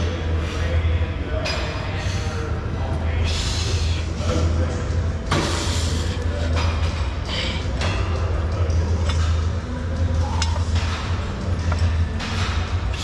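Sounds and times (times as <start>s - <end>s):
steady low hum: 0.0s - 13.0s
hard breathing: 5.4s - 6.6s, 7.2s - 7.8s.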